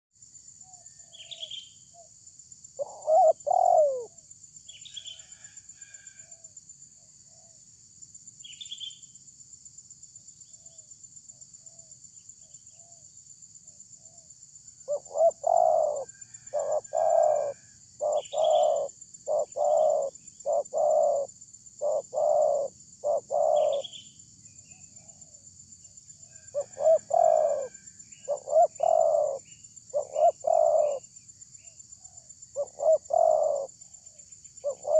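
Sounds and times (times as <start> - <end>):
steady high-pitched hiss: 0.1 - 34.9
small bird chirping: 0.6 - 2.1, 8.4 - 9.2, 14.1 - 25.4, 26.3 - 34.9
dove cooing: 2.8 - 4.2, 14.9 - 24.0, 26.5 - 31.0, 32.6 - 33.8, 34.6 - 34.9.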